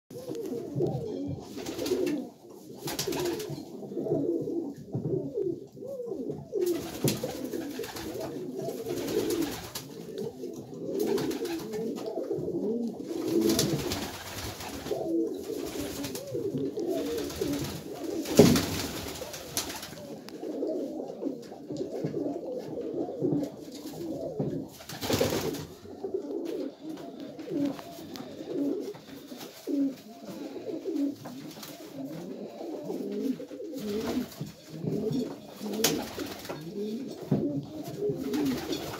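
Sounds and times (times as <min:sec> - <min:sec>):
pigeons cooing: 0:00.1 - 0:38.9
wings flapping: 0:01.4 - 0:03.6, 0:06.6 - 0:10.1, 0:10.9 - 0:12.1, 0:13.0 - 0:20.2, 0:23.4 - 0:25.8, 0:26.4 - 0:32.2, 0:33.1 - 0:36.8, 0:37.9 - 0:38.9.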